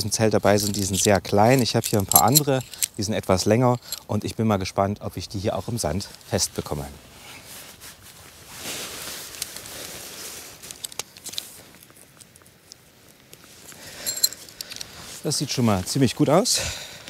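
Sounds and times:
tent poles and pegs clicking: 0.0 - 4.2, 10.6 - 15.2
tent fabric rustling: 5.6 - 12.2.

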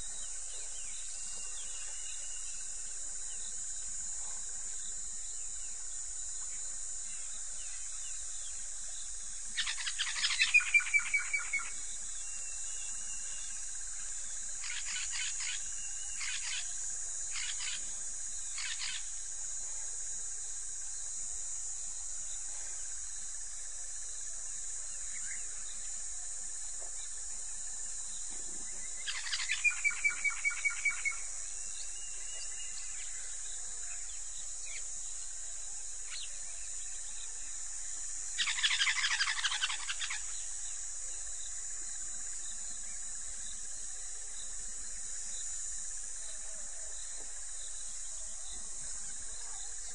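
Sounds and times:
insects droning: 0.0 - 49.9
rapid trilled calls: 38.4 - 40.4.

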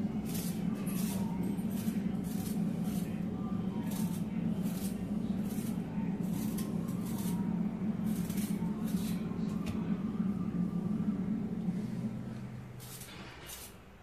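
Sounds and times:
steady low hum: 0.0 - 14.0
blade scraping potato skin: 0.2 - 3.2, 3.8 - 9.2, 12.8 - 13.8.

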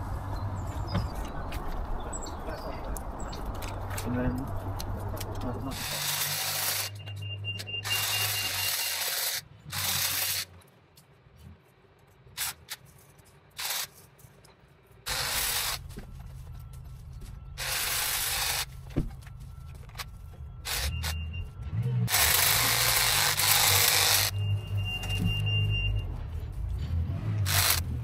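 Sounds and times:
hedge trimmer blades cutting branches: 5.7 - 7.0, 7.8 - 10.5, 15.1 - 15.8, 22.1 - 24.4, 27.4 - 28.0.

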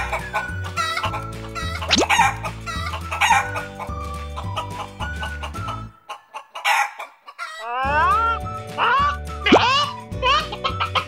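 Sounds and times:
upbeat children's music: 0.0 - 5.9, 7.8 - 11.0
chicken clucking: 4.4 - 7.8.

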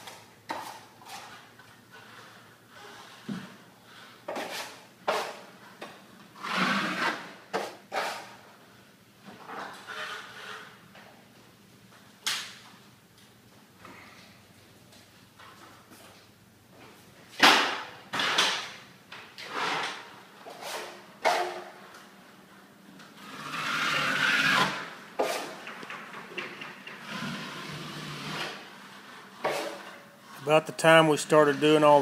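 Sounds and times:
rustling scrape: 19.5 - 21.0.

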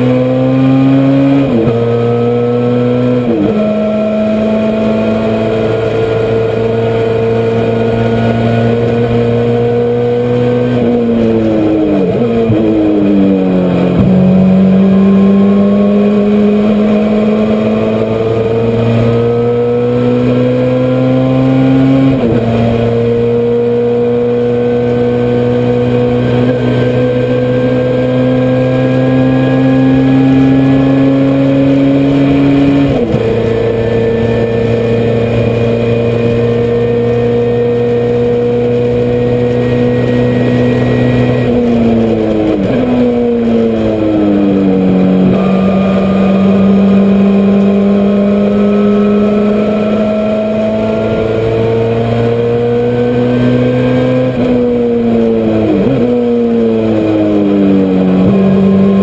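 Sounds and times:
race car engine revving: 0.0 - 59.0.

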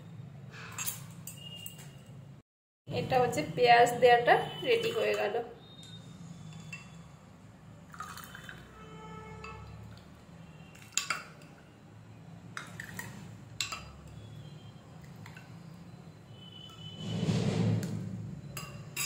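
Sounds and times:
liquid pouring and dripping: 7.8 - 8.8, 12.5 - 14.3, 14.9 - 15.8
ladle clinking against glass: 18.5 - 19.0.

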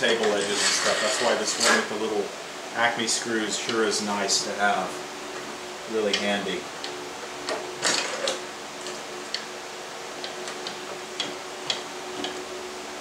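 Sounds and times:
scraping rasp: 0.0 - 1.9
tools clicking and tapping: 10.2 - 12.4.

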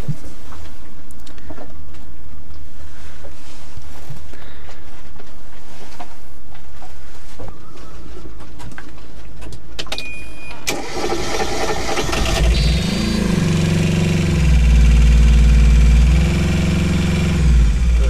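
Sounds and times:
diesel engine cranking and running: 10.7 - 18.0.

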